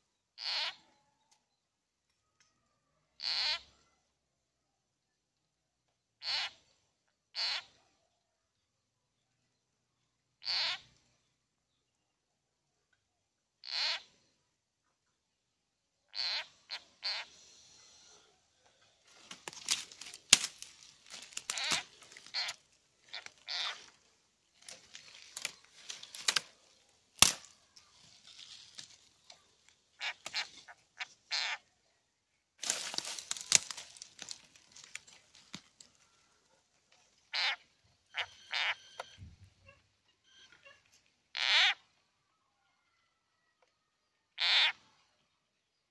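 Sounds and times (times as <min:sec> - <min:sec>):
frog distress cries: 0:00.4 - 0:00.8, 0:03.2 - 0:03.7, 0:10.4 - 0:10.8, 0:13.6 - 0:14.1, 0:16.1 - 0:17.3, 0:21.2 - 0:23.9, 0:37.3 - 0:39.0, 0:41.4 - 0:41.8, 0:44.4 - 0:44.8
dry leaves crackling and rustling: 0:19.0 - 0:30.7, 0:32.6 - 0:36.2
sharp crack: 0:19.2 - 0:22.5, 0:24.7 - 0:27.9.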